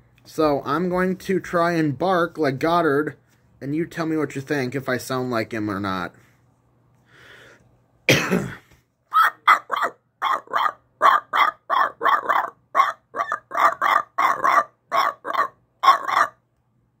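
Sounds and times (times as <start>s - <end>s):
man imitating dog barking: 9.1s - 16.4s.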